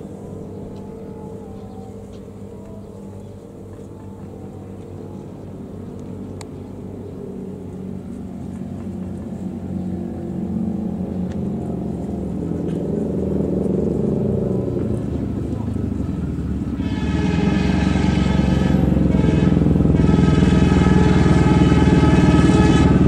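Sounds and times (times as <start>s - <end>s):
locomotive engine drone: 0.0s - 23.0s.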